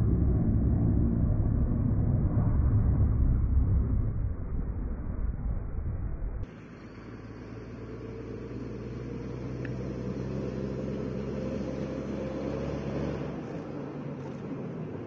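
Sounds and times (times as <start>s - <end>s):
diesel truck engine driving: 5.8s - 15.0s.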